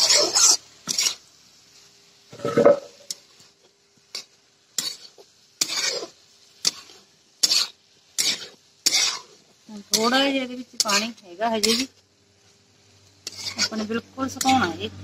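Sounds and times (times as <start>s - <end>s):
spoon scraping a metal pan: 0.0s - 1.3s, 2.3s - 3.2s, 4.1s - 12.0s, 13.2s - 14.8s.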